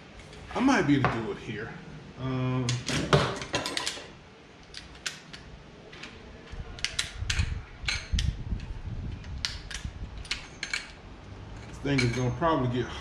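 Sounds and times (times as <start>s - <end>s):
clicks and metal knocks: 4.7s - 11.0s.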